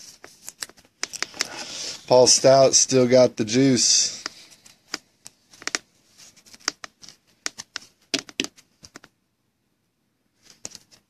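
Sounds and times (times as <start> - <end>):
plastic card sleeves crinkling: 0.0 - 2.5, 4.1 - 9.1, 10.4 - 11.0.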